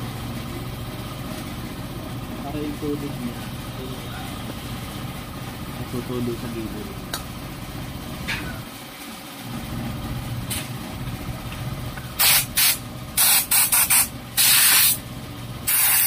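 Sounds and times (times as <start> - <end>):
aerosol spray hissing bursts: 12.2 - 15.0, 15.7 - 16.0.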